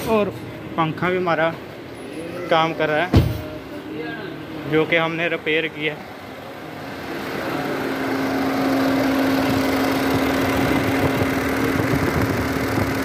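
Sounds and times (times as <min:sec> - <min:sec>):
radiator cooling fan humming: 0:00.0 - 0:13.0
car engine idling: 0:03.3 - 0:13.0.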